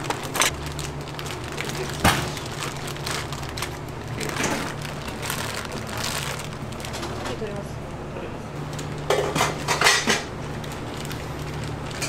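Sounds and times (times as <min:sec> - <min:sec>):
steady low hum: 0:00.0 - 0:12.0
kitchen utensils clattering: 0:09.0 - 0:10.4.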